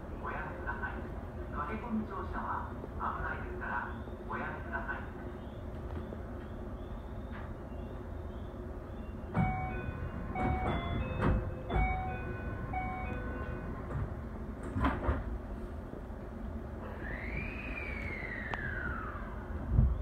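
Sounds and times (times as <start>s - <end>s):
steady low train hum: 0.0s - 20.0s
train doors sliding shut: 8.9s - 15.8s.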